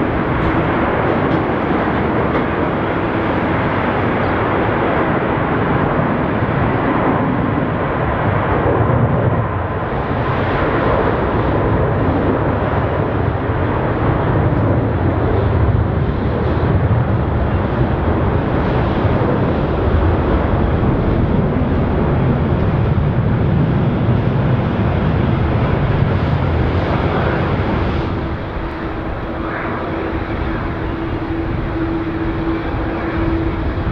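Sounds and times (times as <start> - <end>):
jet engine roar: 0.0 - 33.9.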